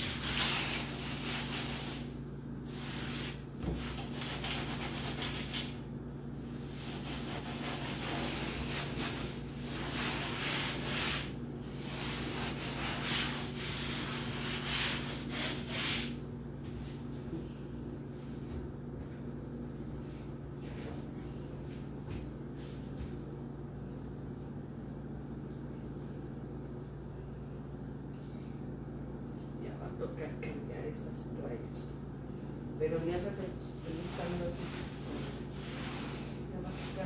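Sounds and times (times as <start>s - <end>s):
sponge scrubbing wet tabletop: 0.0s - 5.8s, 6.6s - 16.8s, 33.3s - 37.0s
low steady hum: 0.0s - 37.0s.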